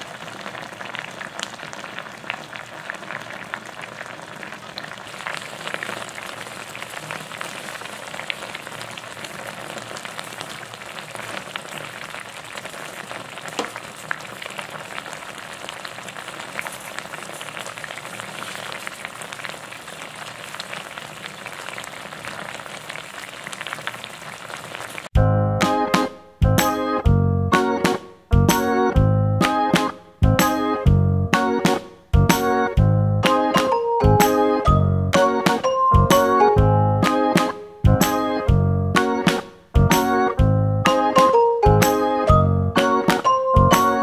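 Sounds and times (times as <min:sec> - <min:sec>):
sauce bubbling in a pot: 0:00.0 - 0:25.2.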